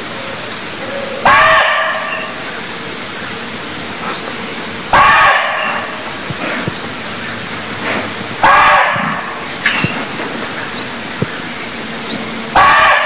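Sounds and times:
deer barking: 1.2 - 2.4, 4.9 - 6.0, 8.4 - 9.4, 12.5 - 13.0.

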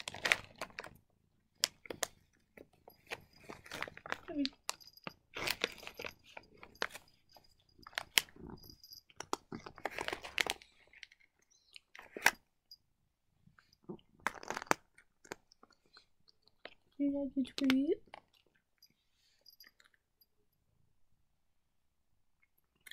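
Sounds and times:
cat crunching dry treats: 0.0 - 12.5, 13.6 - 18.7.

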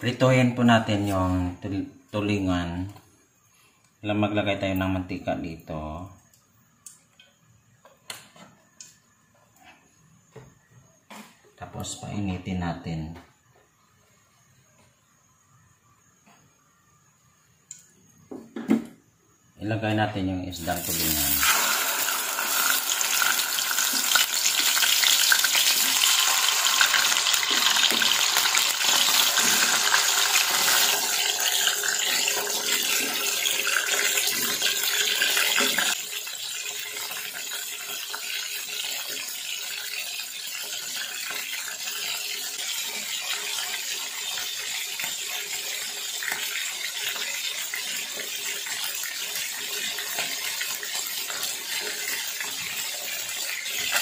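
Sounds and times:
fish frying in oil: 20.6 - 54.0.

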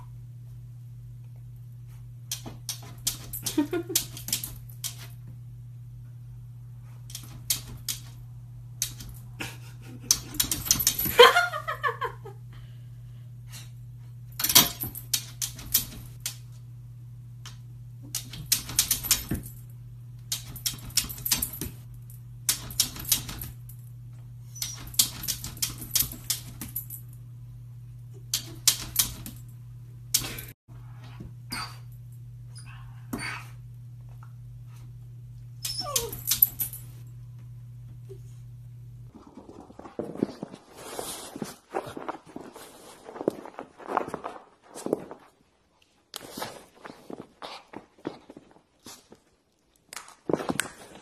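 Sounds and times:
steady low hum: 0.0 - 49.6
puppy whining: 35.6 - 36.7.

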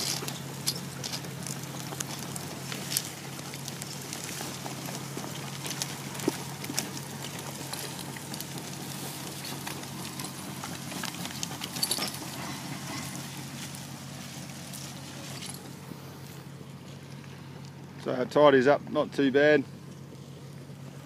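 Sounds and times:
heavy chain clanking and rattling: 0.0 - 15.8
distant bulldozer engines droning: 0.0 - 21.0.

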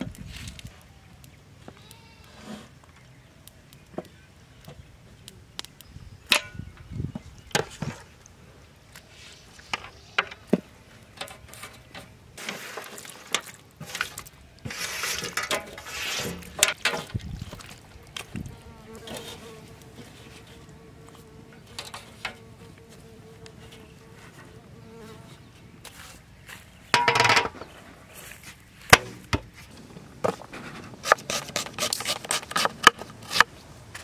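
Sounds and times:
rustling: 11.2 - 34.0.

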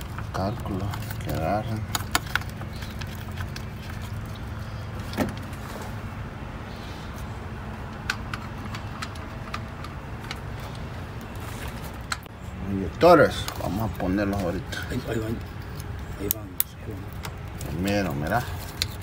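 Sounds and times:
steady low hum: 0.0 - 19.0
clicks and taps of handling parts: 7.9 - 10.9.

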